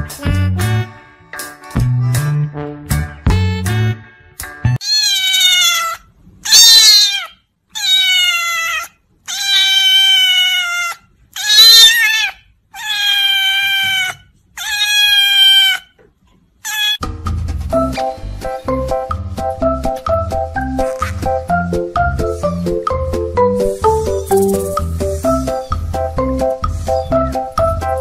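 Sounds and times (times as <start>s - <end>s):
music: 0.0s - 4.8s, 17.0s - 28.0s
cat meowing loudly: 4.8s - 15.9s, 16.6s - 17.0s.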